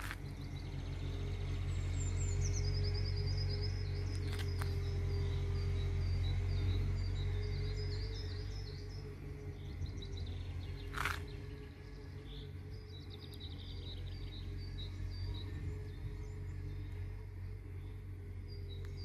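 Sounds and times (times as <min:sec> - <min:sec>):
small birds chirping: 0:00.0 - 0:19.0
steady low hum: 0:00.0 - 0:19.0.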